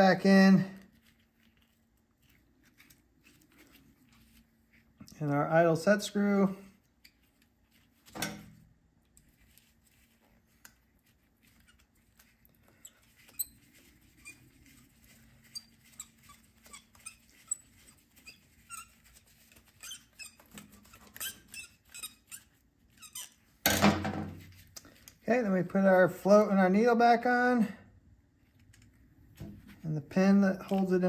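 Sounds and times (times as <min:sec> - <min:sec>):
small squeaks: 0:09.4 - 0:23.7.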